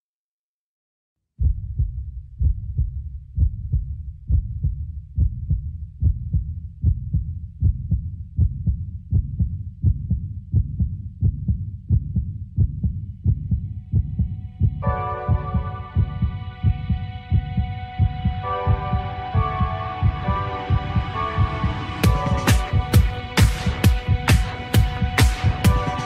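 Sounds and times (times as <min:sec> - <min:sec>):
deep bass drum pulse: 0:01.4 - 0:26.0.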